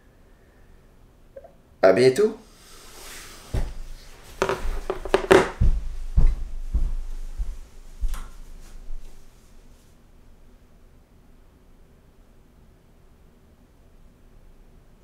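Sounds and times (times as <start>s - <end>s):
office chair creaking: 3.0s - 5.6s
footsteps on wooden floor: 3.5s - 9.3s.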